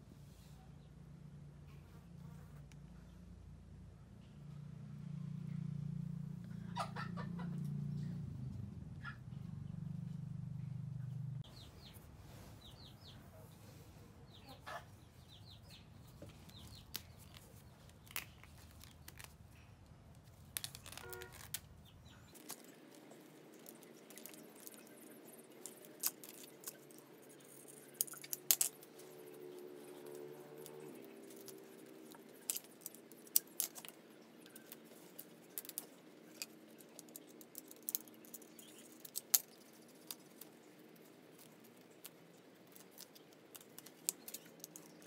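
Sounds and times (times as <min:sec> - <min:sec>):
chickens clucking: 0:06.7 - 0:07.7, 0:14.4 - 0:15.0.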